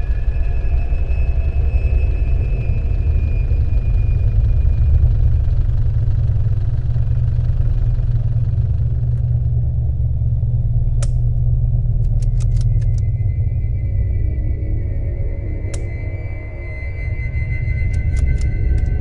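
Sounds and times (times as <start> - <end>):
steady low rumble: 0.0 - 19.0
sharp clicks: 12.0 - 13.1, 17.9 - 19.0.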